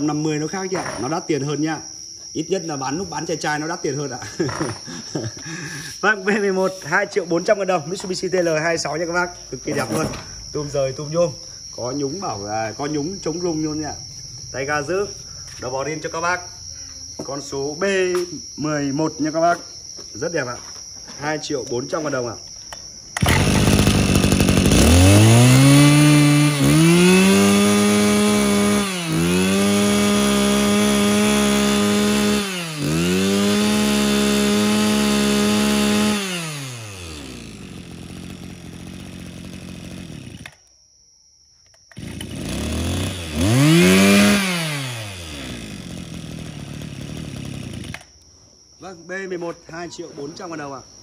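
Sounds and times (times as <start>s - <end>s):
brush cutter engine revving: 23.2s - 40.7s, 41.9s - 48.2s.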